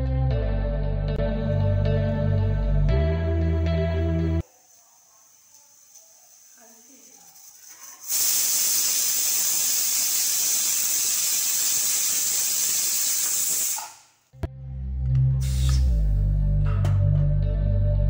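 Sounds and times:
background music: 0.0 - 4.4, 14.4 - 18.0
pressure cooker whistle hissing: 8.0 - 14.1, 15.4 - 16.0.

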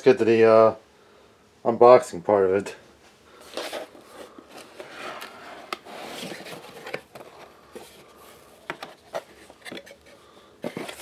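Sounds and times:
cardboard lid scraping: 3.4 - 11.0.

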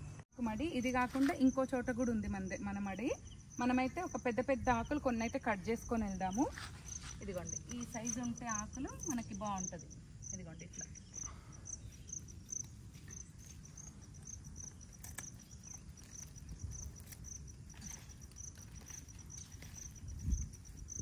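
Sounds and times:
cricket chirping: 0.0 - 21.0.

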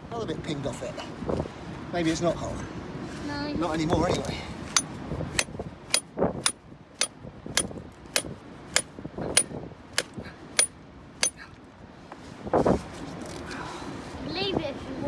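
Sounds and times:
hammer striking steel chisel: 4.8 - 11.4.

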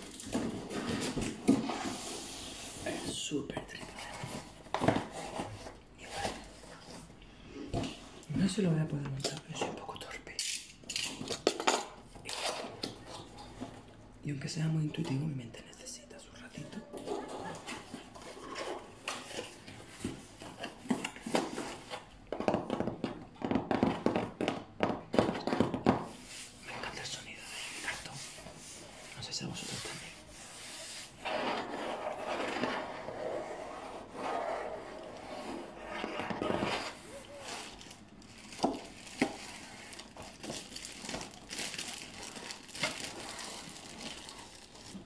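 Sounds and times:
cardboard crackling and creaking: 31.2 - 45.0
plastic bag crinkling: 36.9 - 45.0.

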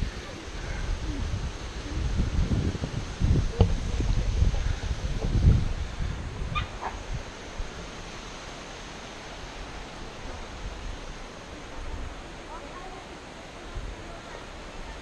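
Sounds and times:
microphone handling rumble: 0.0 - 7.3
wind buffeting microphone: 0.0 - 8.3
steady outdoor hiss: 0.0 - 15.0.

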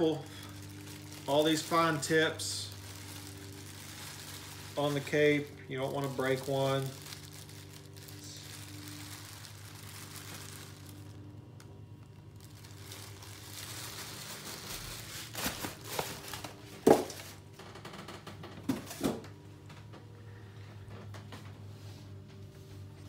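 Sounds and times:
plastic bag rustling: 0.0 - 17.5.

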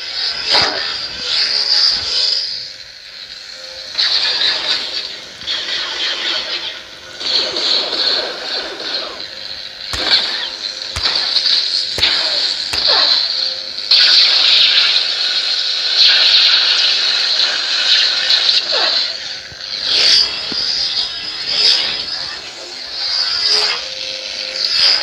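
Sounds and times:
lightsaber hissing hum: 7.8 - 13.8
lightsaber clash hits: 9.9 - 13.4.

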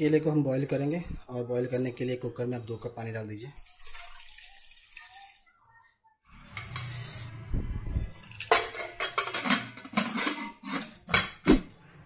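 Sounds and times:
metal lid clanks and clicks: 8.4 - 11.7.

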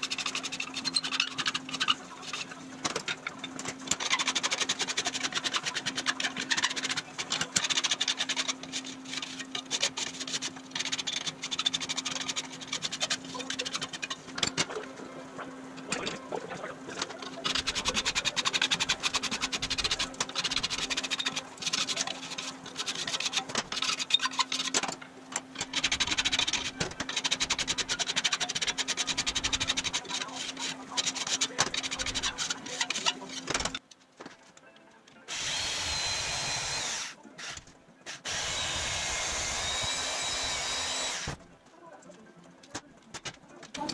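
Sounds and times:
hand file rasping on metal: 0.0 - 2.6, 3.8 - 14.6, 17.3 - 24.8, 25.6 - 33.8.

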